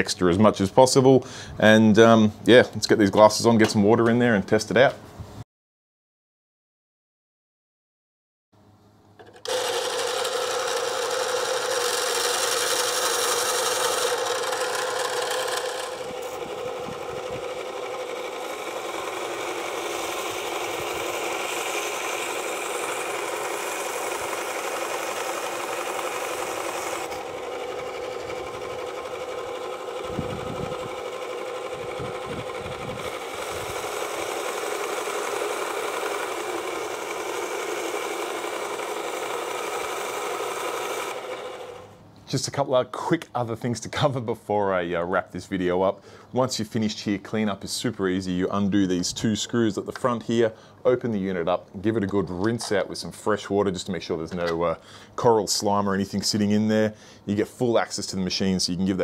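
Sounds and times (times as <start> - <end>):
band saw cutting coral: 9.2 - 42.0.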